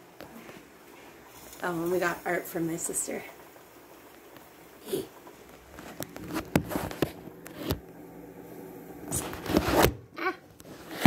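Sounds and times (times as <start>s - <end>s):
scraping and rustling: 5.3s - 7.9s, 9.1s - 10.0s.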